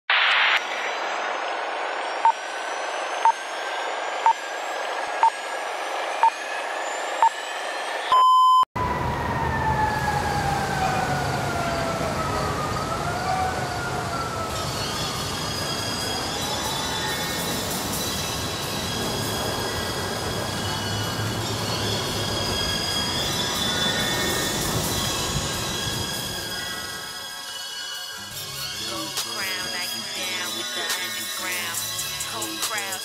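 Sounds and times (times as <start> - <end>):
short electronic beeps: 8.1 - 8.7
faint rising whistles: 12.5 - 28.1.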